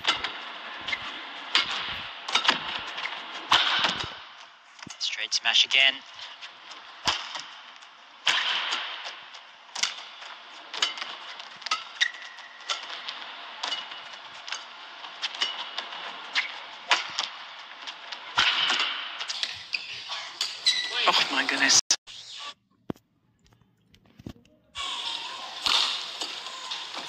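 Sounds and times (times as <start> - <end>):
shoes squeaking on court: 0.0 - 4.2, 10.8 - 13.0, 19.3 - 21.1
shuttlecock struck by rackets: 1.5 - 4.3, 7.0 - 7.6, 8.2 - 17.3.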